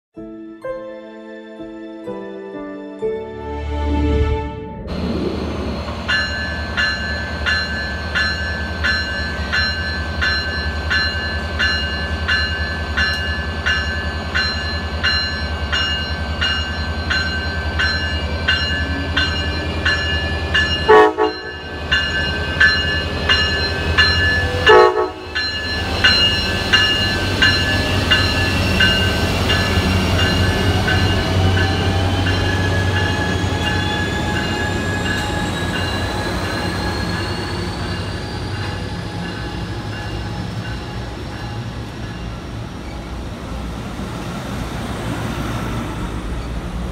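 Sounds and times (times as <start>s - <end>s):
locomotive bell ringing: 6.0s - 43.3s
train horn blasts: 20.8s - 21.6s, 24.5s - 25.4s.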